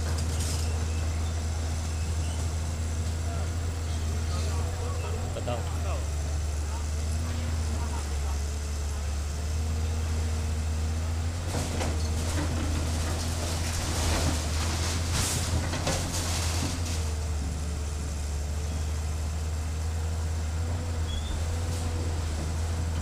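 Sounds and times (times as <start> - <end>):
excavator diesel engine running: 0.0 - 23.0
debris cracking and crashing: 11.5 - 17.2.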